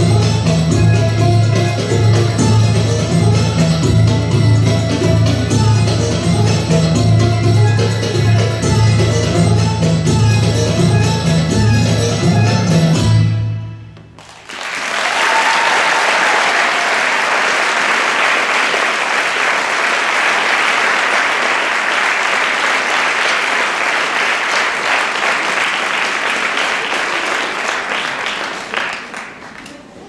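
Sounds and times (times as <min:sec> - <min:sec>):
audience applause: 0:14.2 - 0:30.0.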